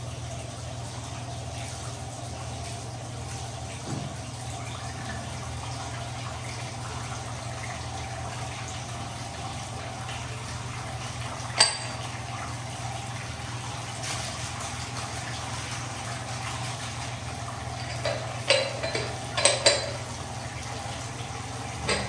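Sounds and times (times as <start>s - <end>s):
tap running into bathtub: 3.8s - 4.4s, 11.2s - 12.4s, 17.7s - 22.0s
glass jar clinking: 11.6s - 12.0s, 17.8s - 20.1s.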